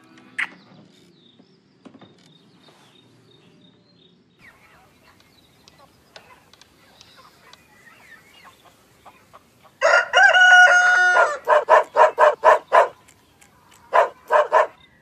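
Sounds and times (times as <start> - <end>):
cartoon rooster crowing: 9.8 - 11.6
short rooster calls: 9.8 - 11.6.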